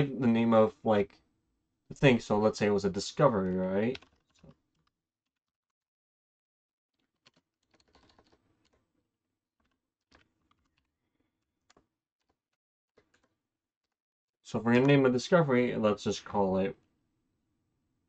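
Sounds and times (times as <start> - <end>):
computer keyboard typing clicks: 3.9 - 4.9, 7.0 - 8.8.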